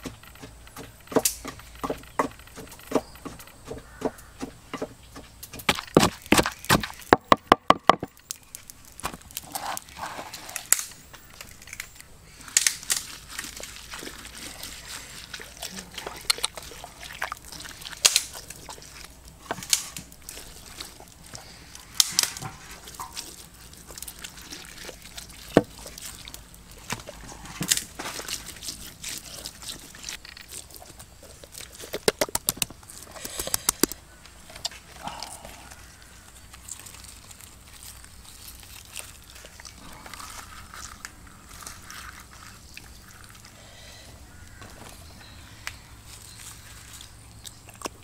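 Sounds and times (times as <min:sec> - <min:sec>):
sharp clicks and slaps: 0:00.0 - 0:08.4, 0:32.0 - 0:34.0
hands squelching paste into fish: 0:08.1 - 0:48.0.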